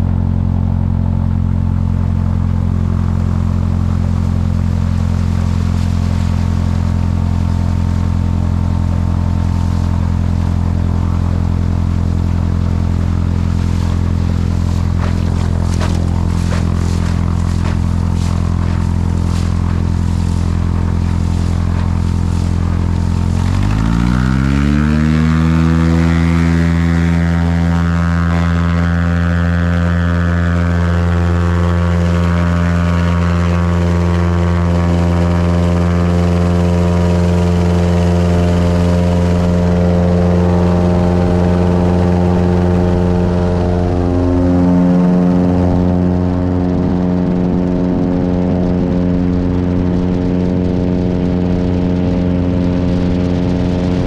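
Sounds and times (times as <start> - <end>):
plane engine and propeller revving: 0.0 - 54.0
water rushing and spraying: 4.5 - 26.8.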